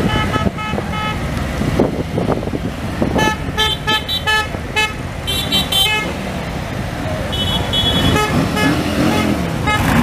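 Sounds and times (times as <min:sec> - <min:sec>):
motorcycle horns honking: 0:00.0 - 0:01.3, 0:03.1 - 0:06.2, 0:07.3 - 0:10.0
motorcycle engines rumbling: 0:00.0 - 0:10.0.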